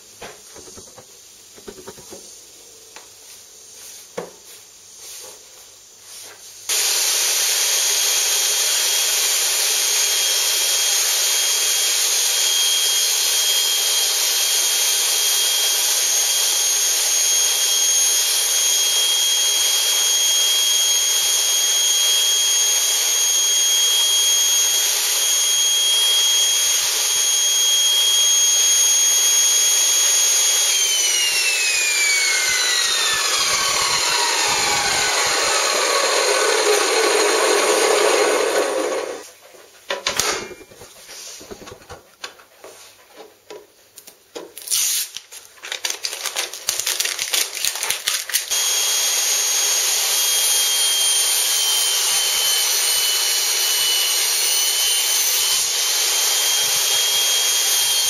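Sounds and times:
saw blade spinning down: 6.7 - 39.3, 40.2 - 40.9
table saw whining: 6.7 - 39.3, 40.0 - 41.6, 48.4 - 58.0.

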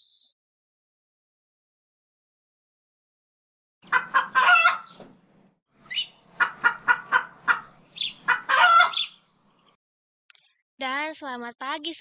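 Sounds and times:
chicken clucking: 3.8 - 5.0, 5.9 - 9.2
rooster crowing: 3.9 - 4.9, 8.3 - 9.1.

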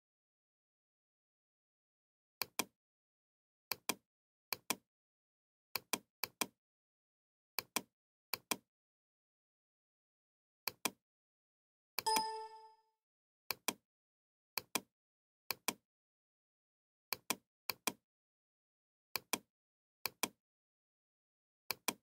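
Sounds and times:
computer mouse clicks: 2.4 - 2.7, 3.7 - 4.8, 5.8 - 6.6, 7.6 - 8.6, 10.7 - 11.0, 13.5 - 13.8, 14.6 - 14.9, 15.5 - 15.8, 17.1 - 18.0, 19.2 - 20.4, 21.7 - 22.0
short ringing chime: 12.1 - 12.8.

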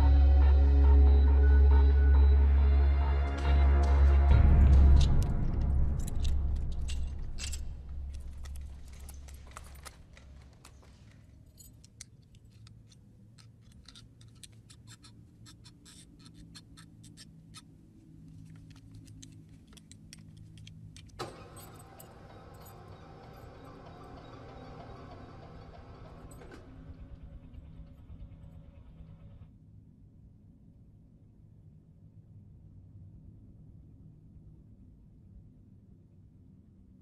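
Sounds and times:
low hum: 0.0 - 14.6, 17.7 - 29.6
metal buckles clinking: 4.7 - 23.5.

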